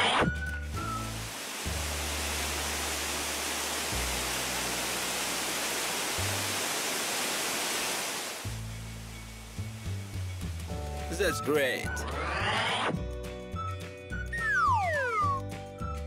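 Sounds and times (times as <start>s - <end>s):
water gushing from hose: 0.7s - 10.7s
low bass music: 8.5s - 16.0s.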